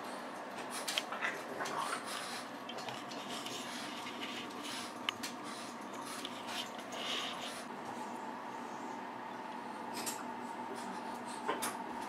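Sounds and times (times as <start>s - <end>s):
faint rustling and ticks: 0.6s - 8.0s.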